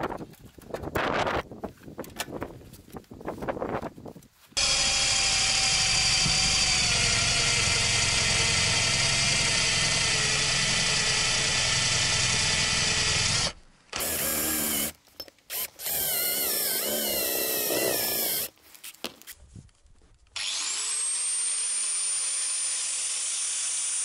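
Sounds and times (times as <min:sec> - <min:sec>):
cordless drill drilling into metal: 0:04.6 - 0:18.5, 0:20.4 - 0:24.0.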